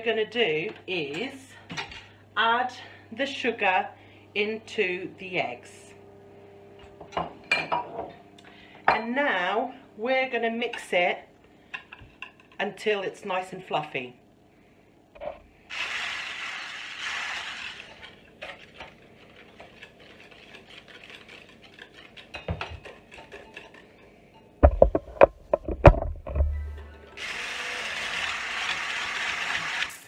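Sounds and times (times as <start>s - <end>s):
hand blender whirring: 15.7s - 18.7s, 27.1s - 30.0s.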